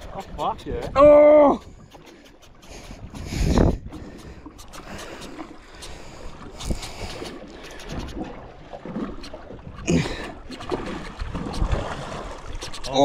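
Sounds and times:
wind on microphone: 0.0 - 2.0, 2.7 - 8.4, 9.5 - 13.0
water against boat hull: 0.0 - 13.0.

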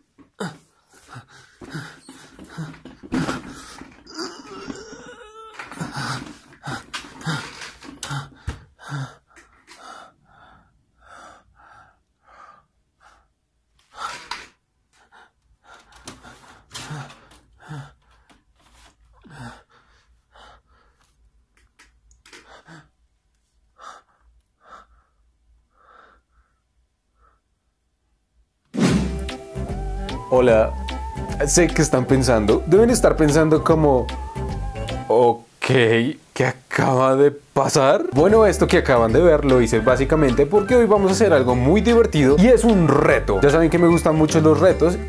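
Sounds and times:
man gasping raggedly: 0.3 - 14.4, 15.0 - 18.4, 19.2 - 21.1.

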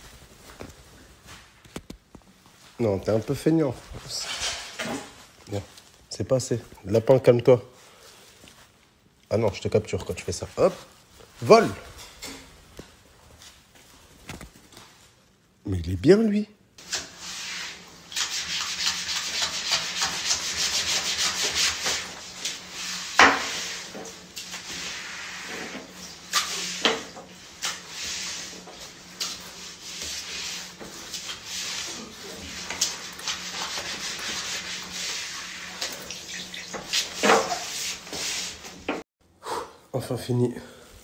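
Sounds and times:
broom sweeping tiled floor: 0.0 - 6.6, 16.8 - 39.0.

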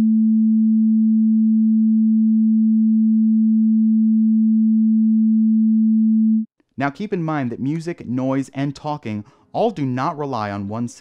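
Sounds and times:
sine-wave test tone: 0.0 - 6.5.

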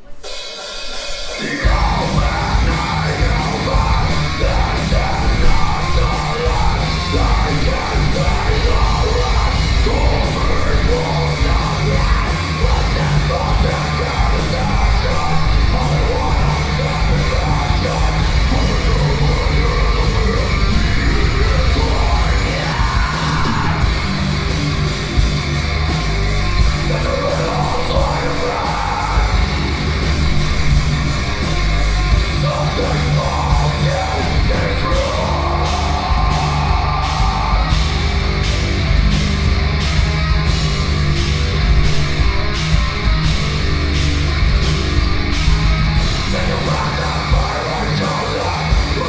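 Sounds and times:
heavy metal band playing: 0.0 - 49.0
screamed vocal: 1.4 - 24.0, 32.5 - 38.2.

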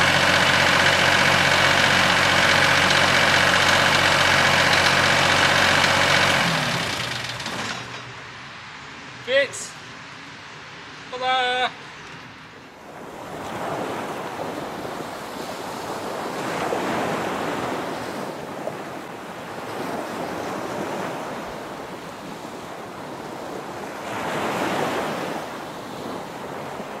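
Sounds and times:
steady rushing noise: 0.0 - 13.0.

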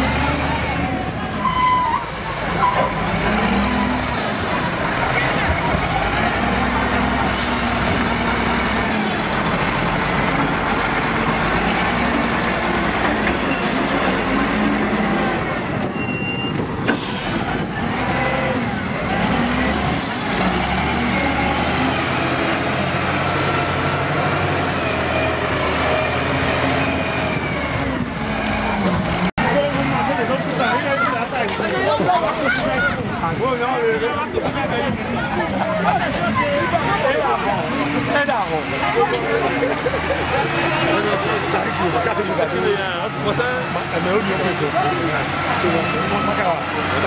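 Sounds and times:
wheel loader diesel engine: 0.0 - 47.0.

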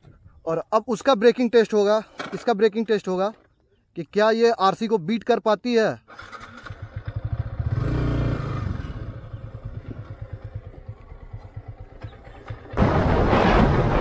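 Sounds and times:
motorcycle engine running: 6.4 - 13.2.

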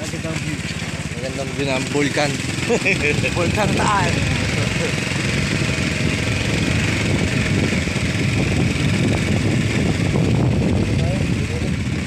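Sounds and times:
motorcycle engine running: 0.0 - 12.0
wind rushing over microphone: 2.4 - 12.0.

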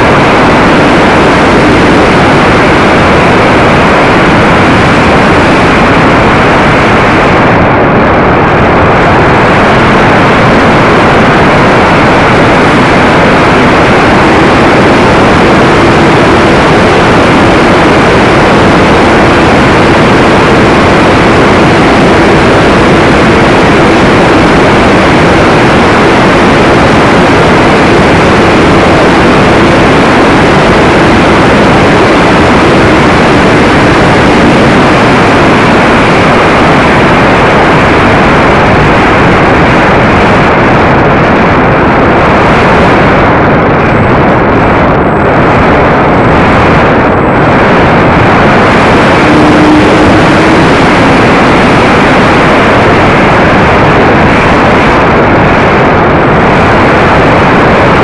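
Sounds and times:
wind and propeller rush: 0.0 - 58.0.

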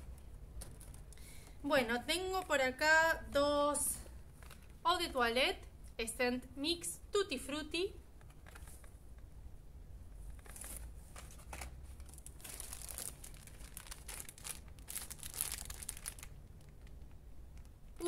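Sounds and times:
plastic packaging crinkling: 0.6 - 1.6, 4.2 - 4.8, 10.3 - 18.0.

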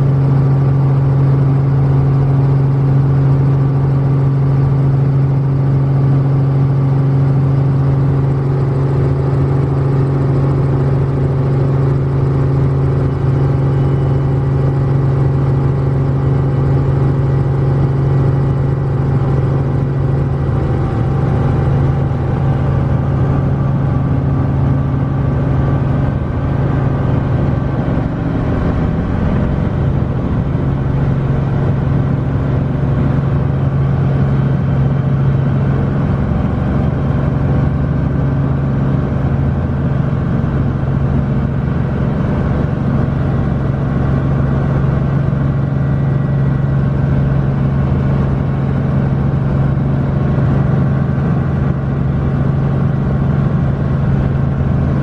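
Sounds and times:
helicopter engine and rotor hum: 0.0 - 55.0.

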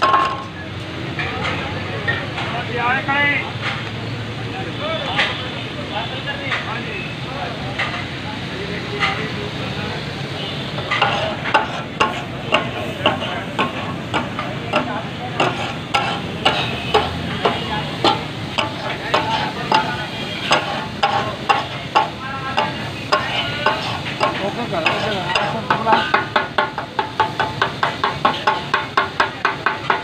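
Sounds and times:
metal spatulas clanging on griddle: 0.0 - 0.6, 10.8 - 30.0
meat sizzling: 10.1 - 28.7.

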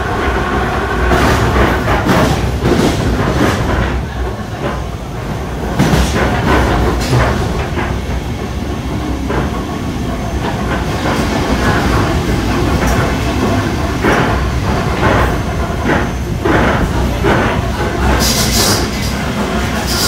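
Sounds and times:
electric train rumbling: 0.0 - 20.0
wheels clattering over rail joints: 0.0 - 20.0.

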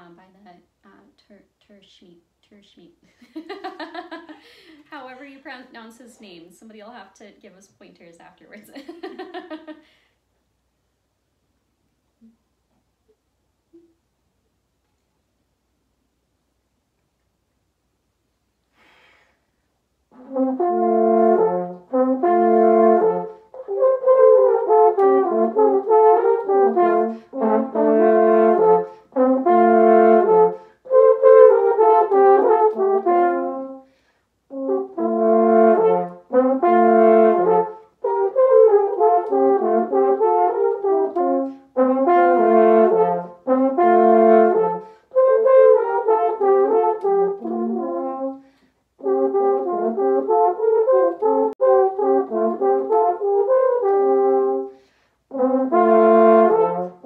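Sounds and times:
french horns playing a fanfare: 20.1 - 33.9, 34.5 - 57.0.

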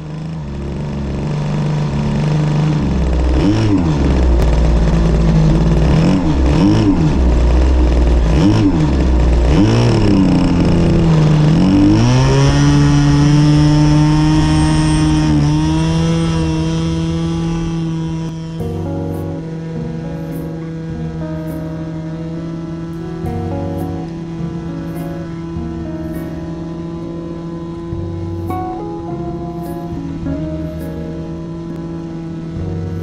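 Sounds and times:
model airplane engine revving: 0.0 - 33.0.

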